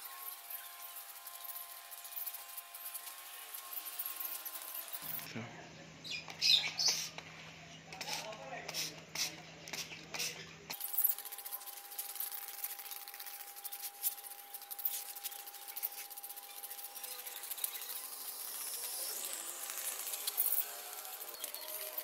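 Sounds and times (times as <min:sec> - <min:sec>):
spray bottle squirts: 0:06.8 - 0:07.2, 0:08.0 - 0:18.0
faint high whine: 0:10.8 - 0:22.0.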